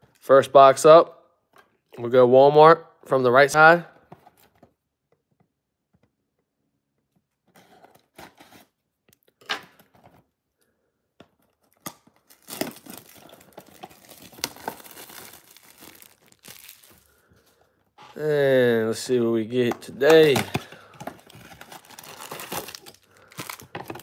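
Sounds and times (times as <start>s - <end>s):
plastic shrink wrap tearing: 11.8s - 17.1s, 21.2s - 24.0s.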